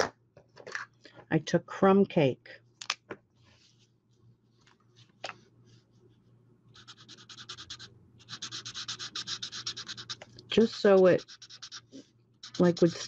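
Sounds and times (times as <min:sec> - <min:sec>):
marker nib scratching on cardstock: 0:06.8 - 0:13.0.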